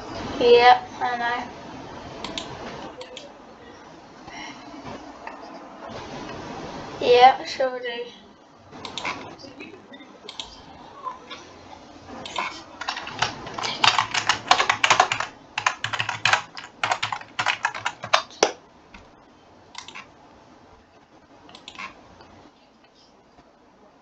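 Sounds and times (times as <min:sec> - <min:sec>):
computer keyboard typing: 0:12.3 - 0:18.6, 0:19.8 - 0:20.1.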